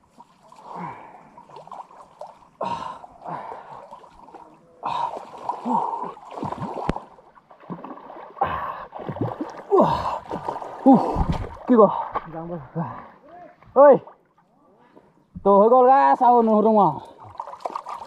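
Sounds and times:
water splashing from swimming: 0.0s - 15.1s, 16.6s - 18.0s
person breathing: 0.6s - 1.4s.

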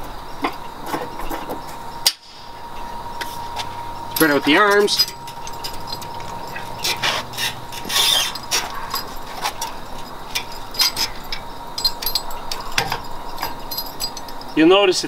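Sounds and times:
metal rattling: 2.8s - 14.8s
metal clicks and clinks: 3.9s - 14.7s.

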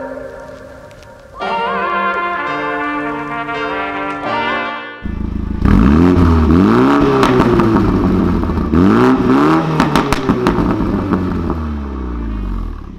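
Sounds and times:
exhaust crackles and pops: 0.0s - 1.4s, 5.0s - 12.9s
car engine idling: 5.0s - 12.9s
car engine revving: 5.0s - 12.9s.

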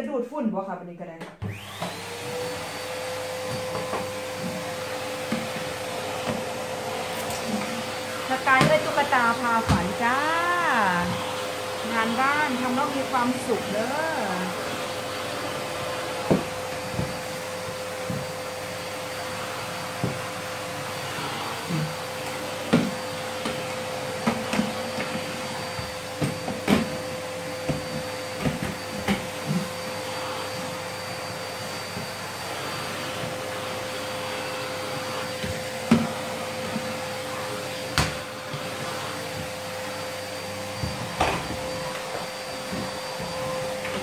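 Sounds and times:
vacuum cleaner humming: 1.4s - 44.0s.

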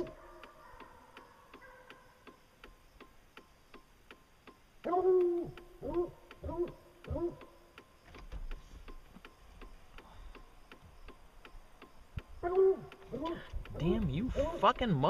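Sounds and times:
hound barking: 0.0s - 2.2s, 4.8s - 7.5s, 12.4s - 13.4s
fast ticking clicks: 0.0s - 15.0s.

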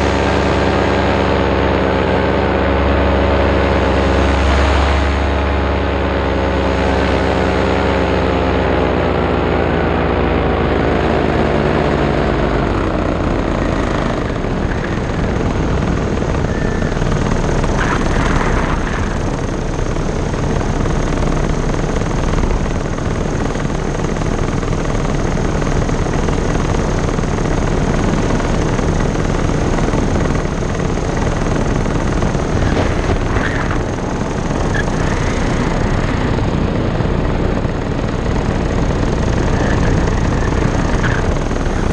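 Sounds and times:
paramotor engine and propeller: 0.0s - 41.9s
rushing air: 32.0s - 37.4s.

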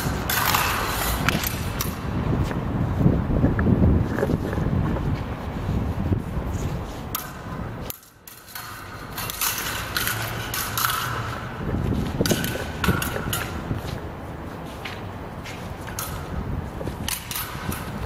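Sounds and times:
swords clashing and scraping: 0.0s - 2.0s, 7.0s - 13.8s
wind rumbling on microphone: 0.0s - 7.9s, 11.1s - 18.0s.

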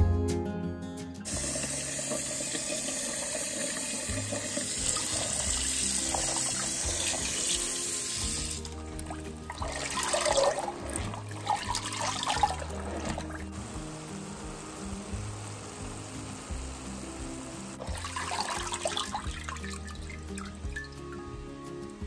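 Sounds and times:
tap running into bowl of water: 1.6s - 13.4s, 17.8s - 21.0s.

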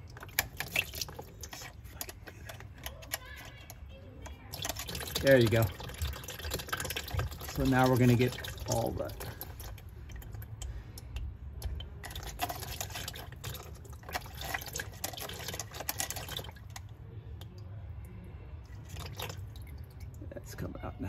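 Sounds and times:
fluid pouring into plastic pan: 0.0s - 3.8s, 4.4s - 17.5s, 18.6s - 20.2s.

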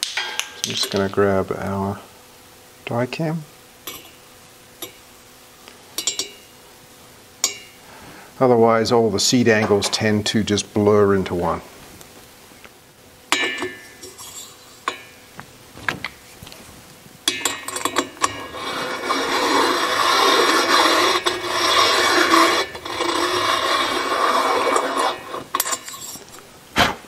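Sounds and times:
valve seat cutter rasping: 17.9s - 26.1s.

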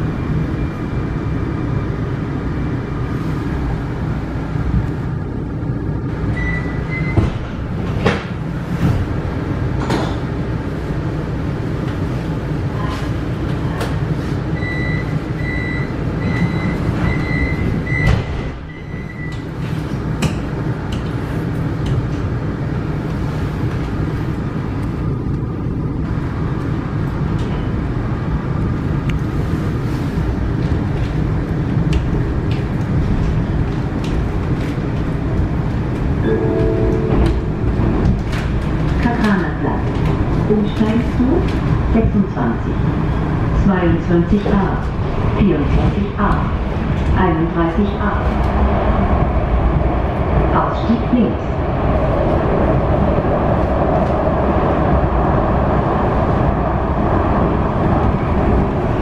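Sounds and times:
train rumbling: 0.0s - 59.0s
door closing warning beeps: 6.4s - 7.3s, 14.6s - 19.4s.

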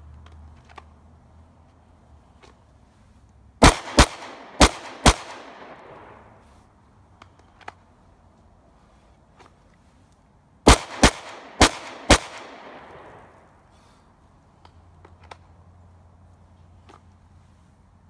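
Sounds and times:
pistol shots echoing: 3.6s - 6.2s, 10.7s - 13.3s.

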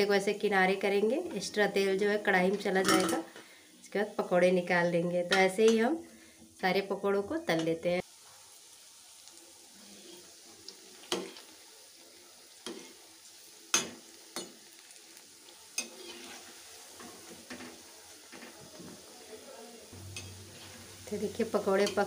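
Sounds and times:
food deep-frying in hot oil: 0.0s - 22.0s
metal spoon clinking against pan: 13.7s - 14.6s, 15.8s - 16.2s, 20.0s - 20.4s.

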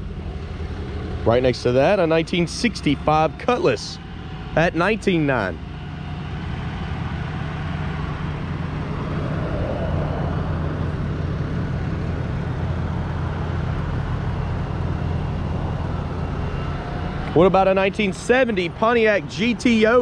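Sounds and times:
outdoor background noise: 0.0s - 20.0s
vehicle engine idling: 0.0s - 20.0s.

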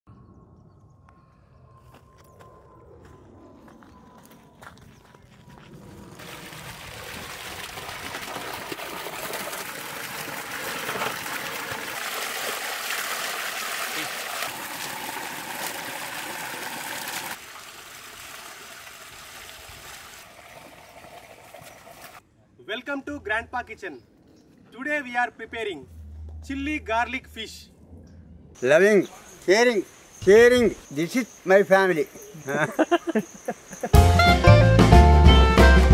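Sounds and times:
hands washing fish splashing: 6.1s - 22.2s
water gushing into metal basin: 6.1s - 22.2s.

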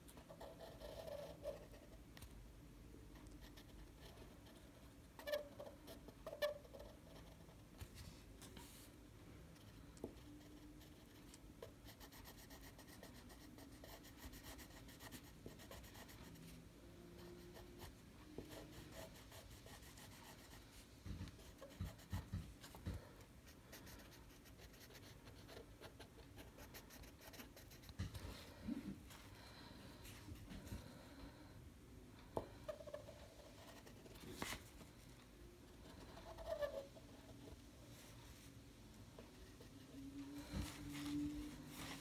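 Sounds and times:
marker scratching on paper: 17.2s - 22.9s, 35.8s - 37.6s.

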